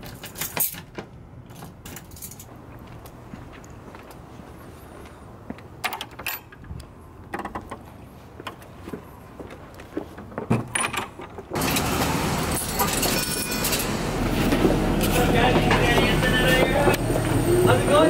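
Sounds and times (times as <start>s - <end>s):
keys jangling: 1.5s - 2.5s
moving bus interior noise: 8.1s - 18.0s.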